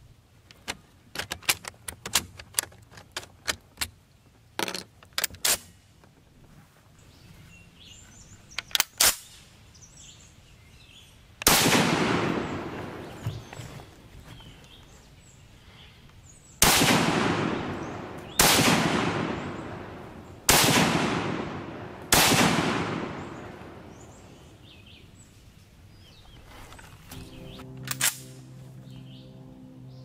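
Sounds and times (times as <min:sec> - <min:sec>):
rifle shots with echo: 0:11.4 - 0:13.2, 0:16.6 - 0:24.6.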